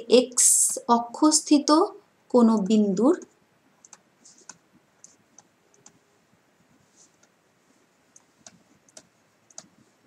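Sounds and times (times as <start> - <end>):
stylus tapping on tablet screen: 3.2 - 6.0, 6.7 - 7.4, 8.1 - 10.0.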